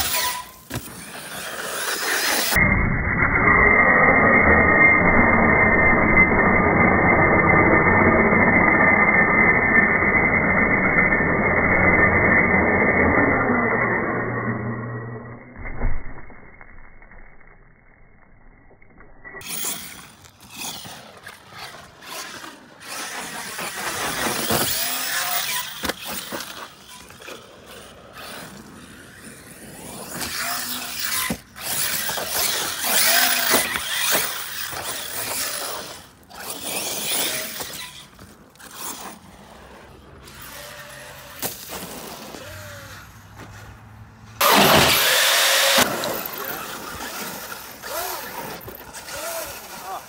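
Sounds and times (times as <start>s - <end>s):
tires crunching dirt and gravel: 0.0s - 50.0s
electric motor whining: 19.4s - 43.2s, 44.4s - 50.0s.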